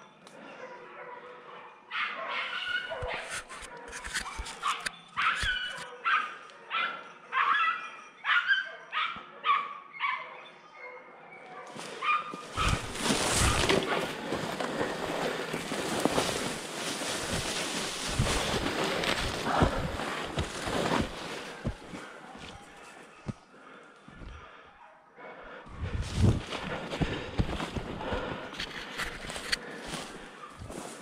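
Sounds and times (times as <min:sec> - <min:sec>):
dogs yelping: 0:00.6 - 0:23.4
rushing and rustling near microphone: 0:12.4 - 0:22.7, 0:25.8 - 0:31.0.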